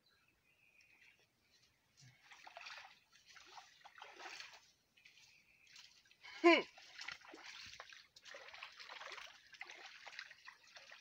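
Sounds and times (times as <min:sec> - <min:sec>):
stream water splashing: 0:02.0 - 0:11.0.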